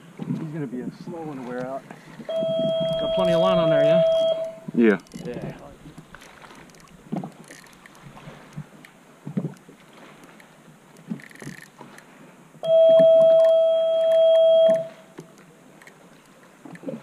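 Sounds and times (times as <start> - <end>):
loud steady tone: 2.3 - 4.8, 12.6 - 15.1.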